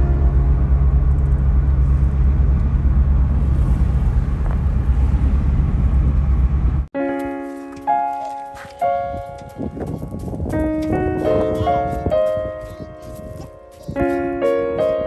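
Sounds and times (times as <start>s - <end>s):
car driving rumble: 0.0s - 6.9s.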